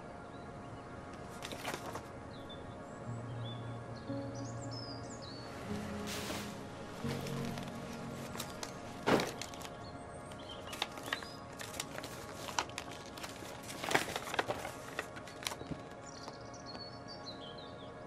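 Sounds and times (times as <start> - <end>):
quiet background music: 0.0 - 18.0
paper crinkling and rustling: 1.1 - 2.1, 6.0 - 16.8.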